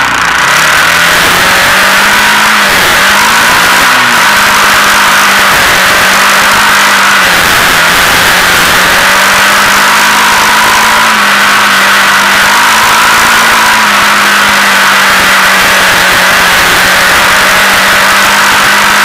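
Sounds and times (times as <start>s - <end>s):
constant rushing noise: 0.0s - 19.0s
quad engine running: 0.0s - 19.0s.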